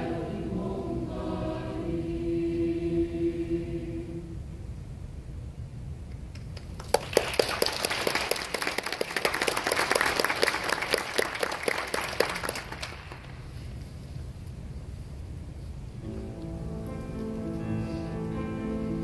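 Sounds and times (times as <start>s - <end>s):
choir holding a chord: 0.0s - 4.5s, 16.0s - 19.0s
audience applause: 6.6s - 13.4s.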